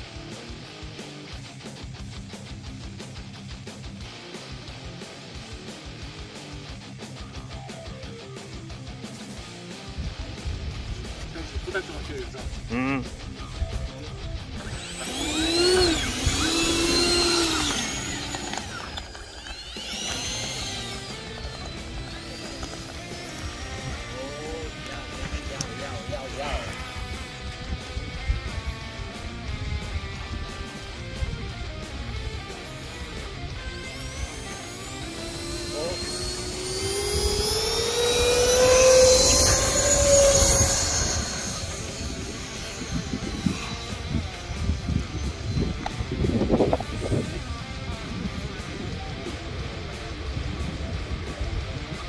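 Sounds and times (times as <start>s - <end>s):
model jet fans whining: 10.4s - 52.0s.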